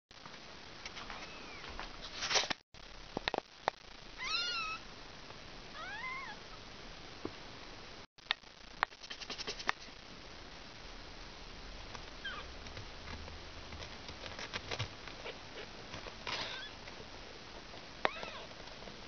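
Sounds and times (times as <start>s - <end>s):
cat meowing: 4.2s - 4.8s, 5.8s - 6.4s, 18.1s - 18.5s.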